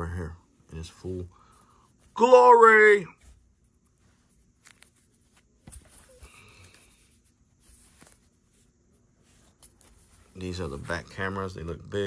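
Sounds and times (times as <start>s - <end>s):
soft clicks and rustles: 3.2s - 11.0s.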